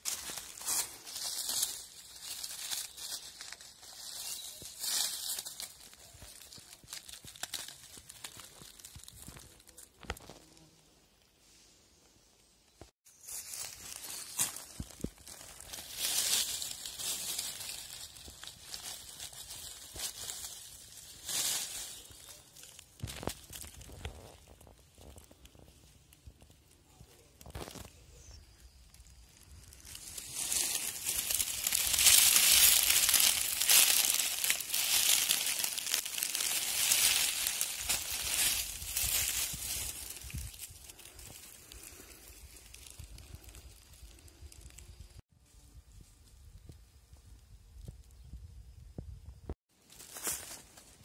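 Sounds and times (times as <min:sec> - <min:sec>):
dry leaves rustling and crackling: 0:00.0 - 0:10.7, 0:13.1 - 0:45.2, 0:49.8 - 0:51.0.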